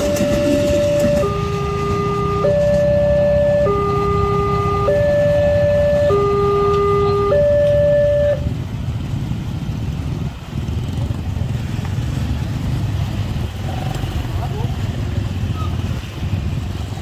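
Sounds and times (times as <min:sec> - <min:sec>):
two-tone crossing alarm: 0:00.0 - 0:08.6
motorcycles passing: 0:00.0 - 0:17.0.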